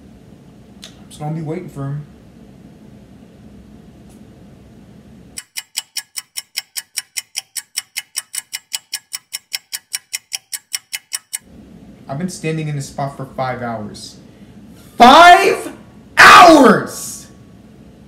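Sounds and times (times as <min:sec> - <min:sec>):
clock ticking: 0:05.4 - 0:11.4.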